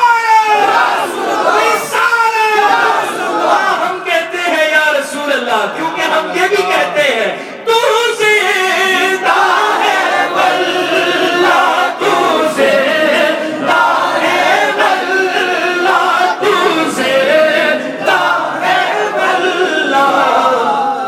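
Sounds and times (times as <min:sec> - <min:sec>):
voices singing in unison: 0:00.5 - 0:03.9, 0:08.4 - 0:21.0
man singing into a microphone: 0:03.6 - 0:09.8, 0:14.7 - 0:18.0.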